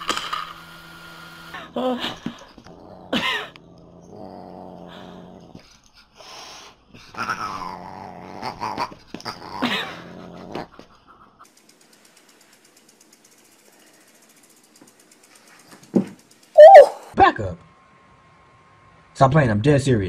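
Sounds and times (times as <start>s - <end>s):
cat growling and yowling: 1.6s - 5.6s, 7.1s - 10.8s, 16.6s - 17.1s.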